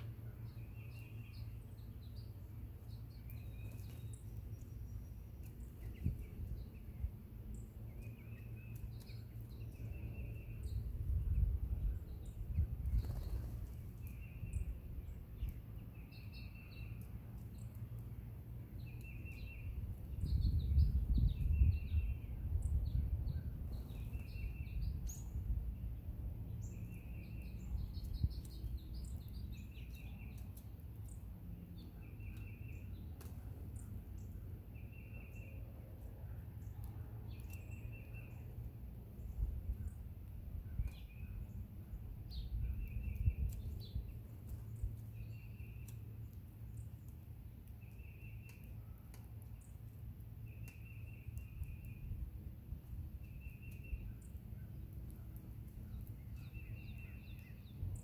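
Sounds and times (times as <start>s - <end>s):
songbirds chirping: 0.0s - 58.0s.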